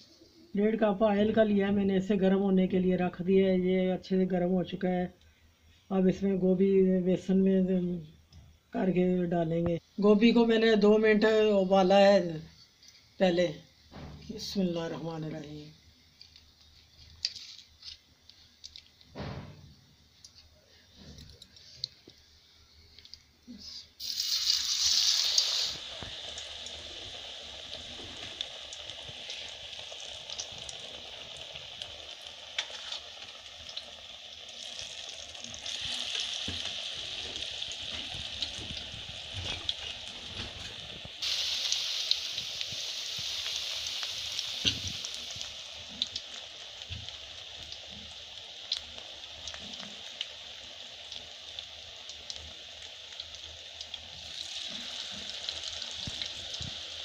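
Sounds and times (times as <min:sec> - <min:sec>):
food deep-frying in hot oil: 0:13.1 - 0:57.0.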